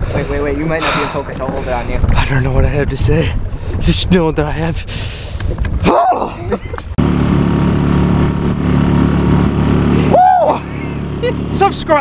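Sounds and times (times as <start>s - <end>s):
outboard motor running: 7.0s - 12.0s.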